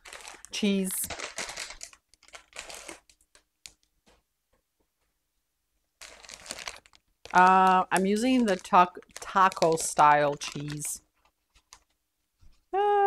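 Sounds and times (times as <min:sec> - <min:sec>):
plastic bag crinkling: 0:00.0 - 0:03.9, 0:06.0 - 0:12.0.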